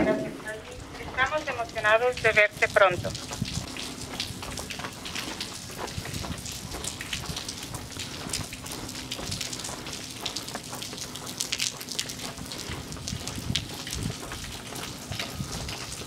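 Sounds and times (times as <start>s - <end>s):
rain on wet pavement: 0.0s - 16.0s
raindrop hits: 0.0s - 16.0s.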